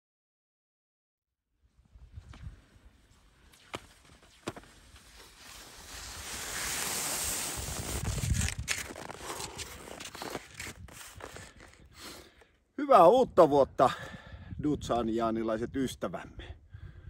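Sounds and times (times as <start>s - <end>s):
wind rumble on microphone: 1.8s - 3.0s, 7.5s - 9.2s, 14.0s - 17.0s
skis hissing on snow: 2.6s - 12.2s
ski pole clicks: 7.8s - 11.8s.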